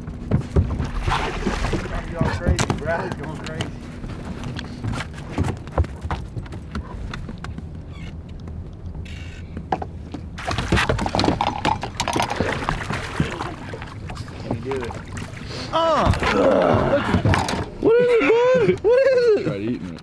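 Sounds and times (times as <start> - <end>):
fish splashing in water: 0.8 - 2.7, 10.4 - 16.3.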